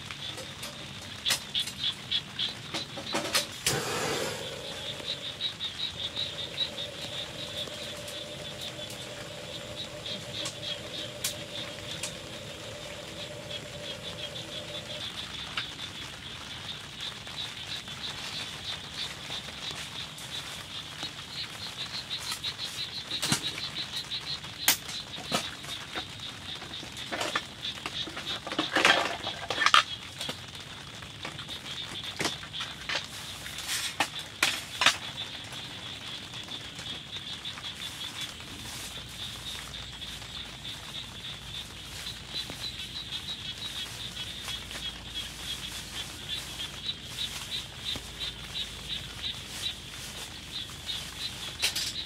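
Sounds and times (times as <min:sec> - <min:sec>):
rain pattering on tent: 0:00.0 - 0:52.0
low hum: 0:03.7 - 0:15.0.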